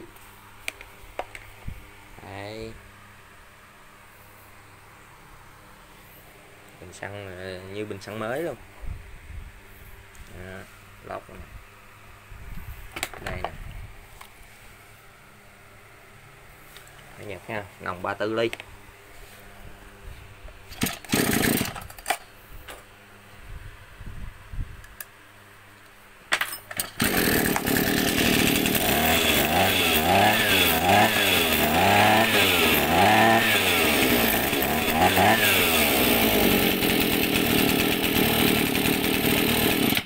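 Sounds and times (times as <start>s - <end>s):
brush-cutter engine revving: 20.8s - 21.9s, 26.8s - 40.0s.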